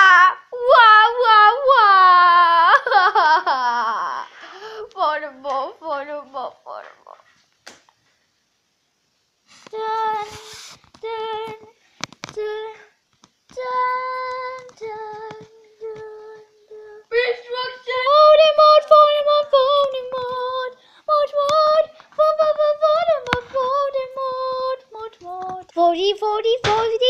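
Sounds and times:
child singing: 0.0 - 2.8, 9.7 - 27.0.

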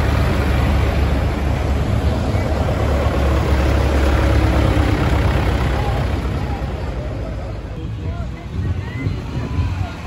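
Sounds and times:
tractor engine rumbling past: 0.0 - 7.8.

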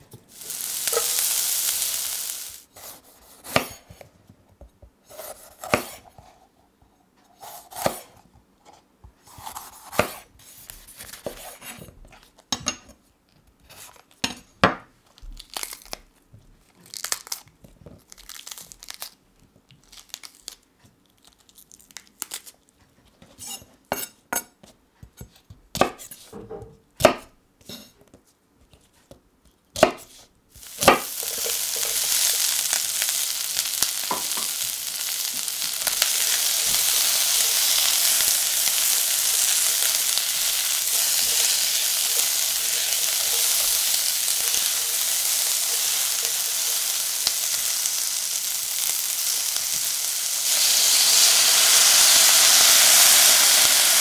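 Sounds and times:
vegetables sizzling in hot oil: 0.0 - 2.7, 30.5 - 54.0.

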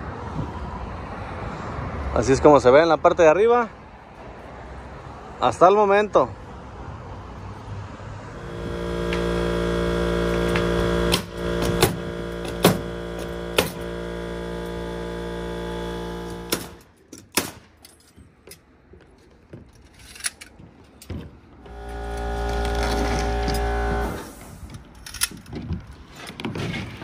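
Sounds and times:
steady machine hum: 8.4 - 16.8, 21.6 - 24.3
nail gun shots: 11.1 - 12.9, 13.6 - 13.8, 16.4 - 17.7.

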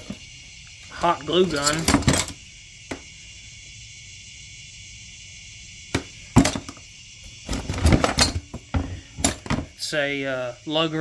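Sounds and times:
steady high hiss: 0.0 - 11.0
metal tools clanking in plastic tote: 1.4 - 2.4, 7.5 - 9.7.

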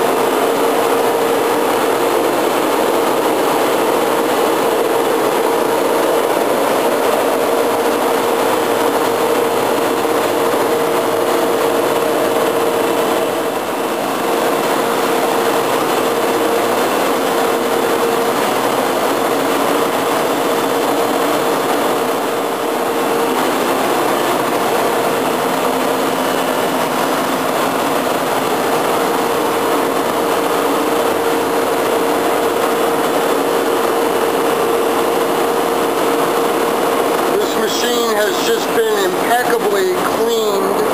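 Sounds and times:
machinery hum and hiss: 0.0 - 40.9.

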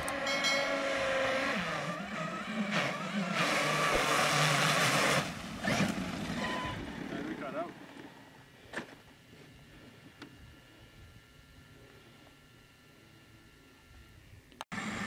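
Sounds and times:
electric motor whining: 0.0 - 8.6
water spraying and splashing: 3.7 - 5.4.

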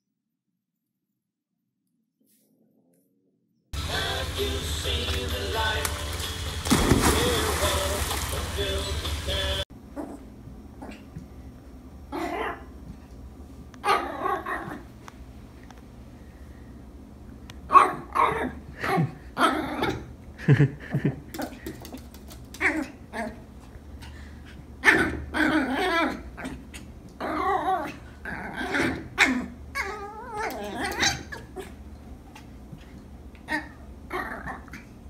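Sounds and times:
puppy barking and yapping: 13.8 - 14.8, 28.7 - 31.8
puppy growling: 18.2 - 20.1, 24.8 - 32.5, 33.4 - 35.0.

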